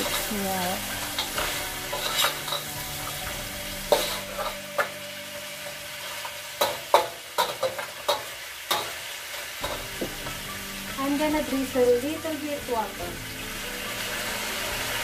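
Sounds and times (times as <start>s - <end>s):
metal spatula clanking and scraping: 0.0s - 4.9s, 6.0s - 10.6s
crabs sizzling in a wok: 0.0s - 15.0s.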